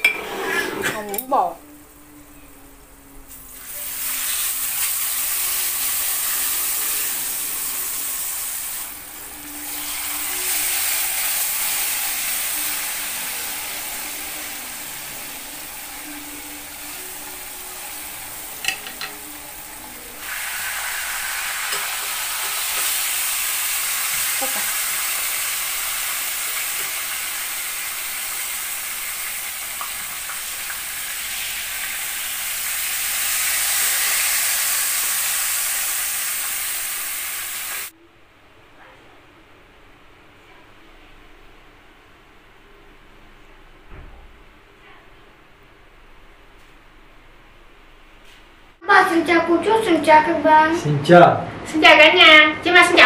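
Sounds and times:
fish sizzling in hot oil: 3.3s - 37.9s.

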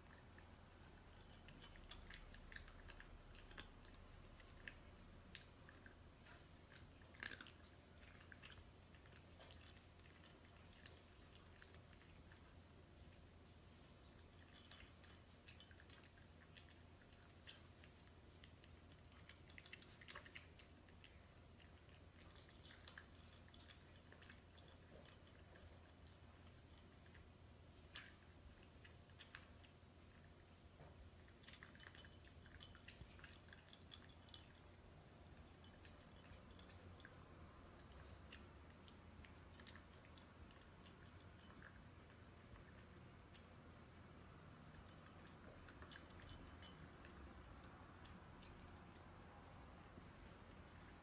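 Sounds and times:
kibble clinking against bowl: 0.1s - 12.5s, 14.0s - 49.0s
cat crunching dry kibble: 0.1s - 12.6s.

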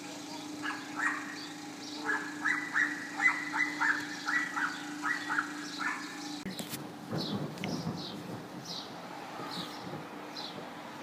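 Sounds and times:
steady low hum: 0.0s - 8.7s.

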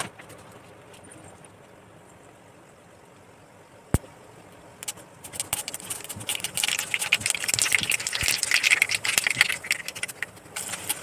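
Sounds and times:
mustard seeds popping in hot oil: 5.3s - 11.0s
oil sizzling: 6.3s - 11.0s.

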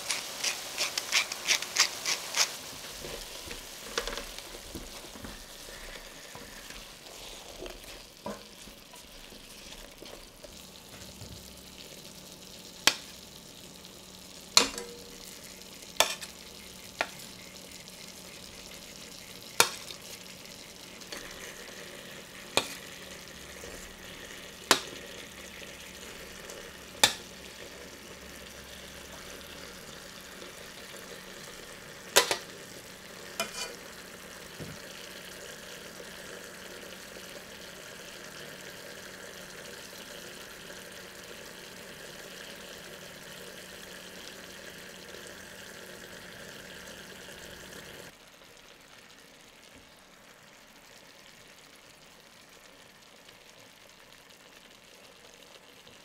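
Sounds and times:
food sizzling in a pot: 0.0s - 56.0s
tongs clinking against pot: 14.6s - 15.1s.

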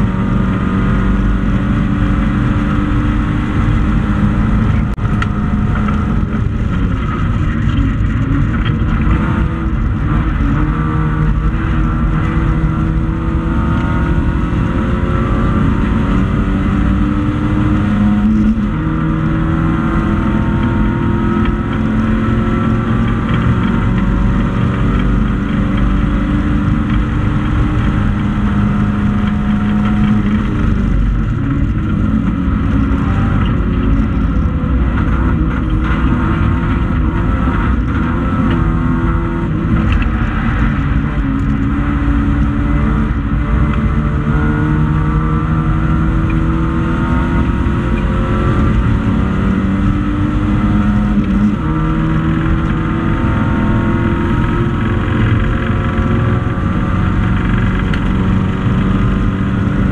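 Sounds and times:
race car engine revving: 0.0s - 59.9s.

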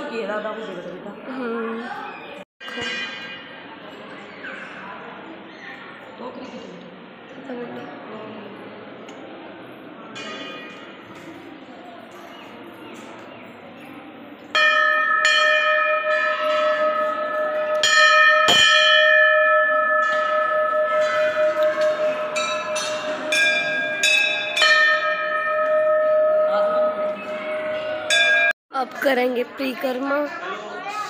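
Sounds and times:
temple bell ringing: 2.6s - 3.7s, 14.5s - 28.6s.

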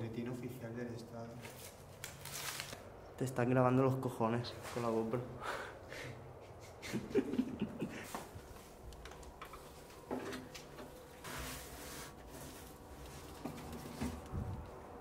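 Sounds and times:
wooden door scraping: 10.0s - 14.5s.

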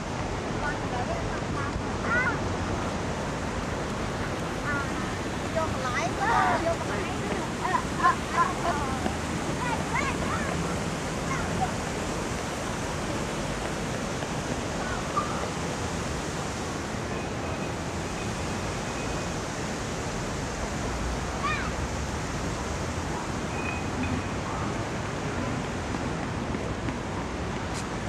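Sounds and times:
street traffic rushing: 0.0s - 28.0s
faint distant voices: 0.4s - 18.2s.

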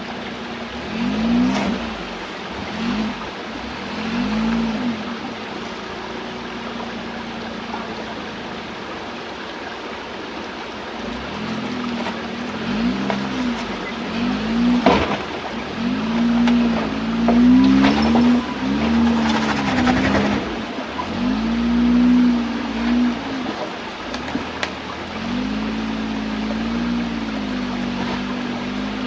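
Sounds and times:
off-road engine revving: 0.0s - 29.0s.

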